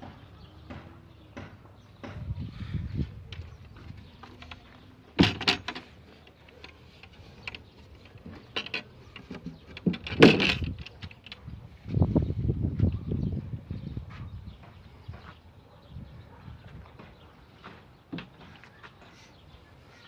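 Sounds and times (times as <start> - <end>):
wooden doors knocking shut: 5.2 - 5.8.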